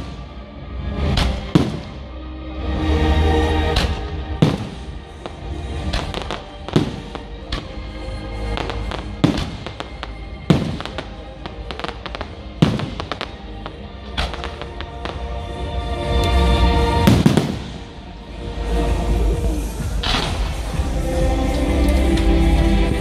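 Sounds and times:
music: 0:00.0 - 0:23.0
fireworks bangs: 0:01.1 - 0:02.0, 0:03.8 - 0:07.8, 0:08.5 - 0:15.2, 0:17.0 - 0:18.0
crackling fireworks stars: 0:03.8 - 0:18.1.

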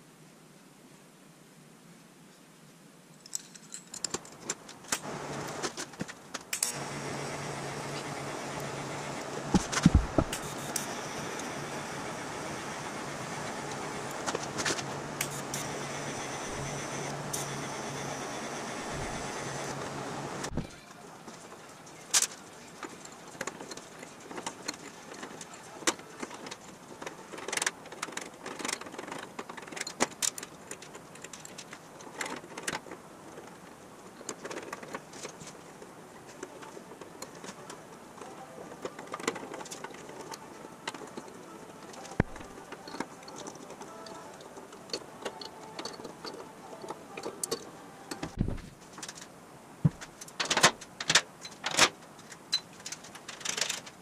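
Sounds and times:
screwdriver turning screws: 0:06.6 - 0:20.6
low thuds and knocks: 0:09.5 - 0:10.4, 0:48.3 - 0:48.8.

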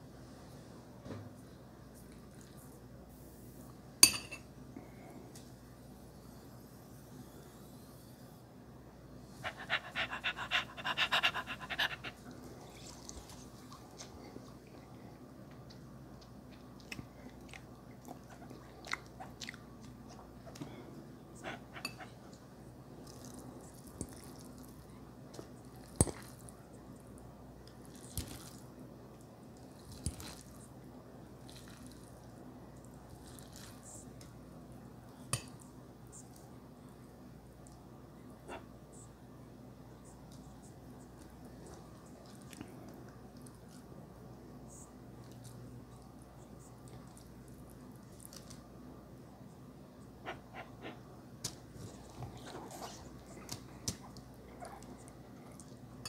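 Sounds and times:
squishy sauced noodles on fork: 0:23.0 - 0:24.8, 0:29.7 - 0:30.6, 0:31.4 - 0:34.1, 0:46.8 - 0:48.6.

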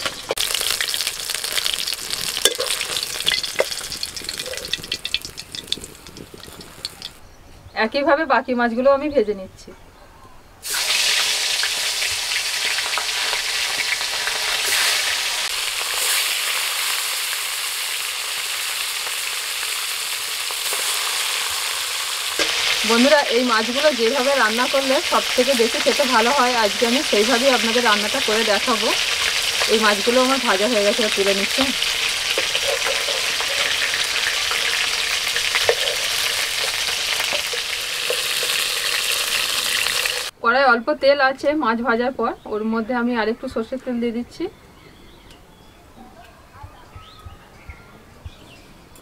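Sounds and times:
fish sizzling in hot oil: 0:00.0 - 0:07.2, 0:10.6 - 0:40.3.

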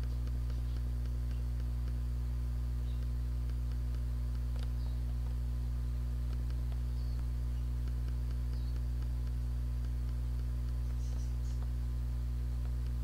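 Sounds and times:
faint clicks: 0:00.0 - 0:13.0
low electrical hum: 0:00.0 - 0:13.0.

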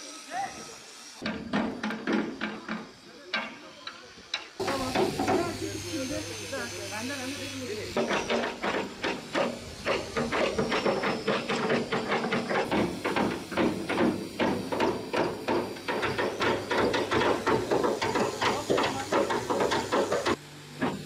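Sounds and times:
hammer striking steel: 0:08.0 - 0:20.4.

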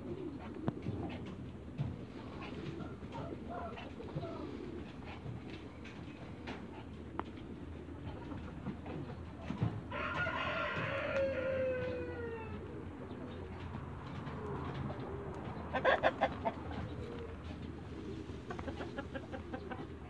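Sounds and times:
chickens clucking: 0:00.0 - 0:20.0
rooster crowing: 0:09.9 - 0:12.6.

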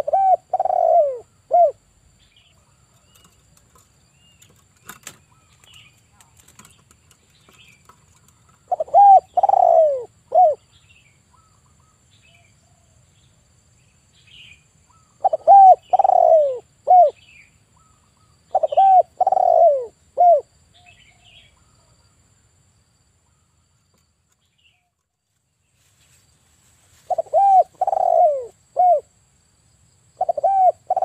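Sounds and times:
dove cooing: 0:00.0 - 0:01.8, 0:07.8 - 0:10.6, 0:14.9 - 0:17.2, 0:17.8 - 0:21.8, 0:27.1 - 0:29.1, 0:30.2 - 0:31.0.

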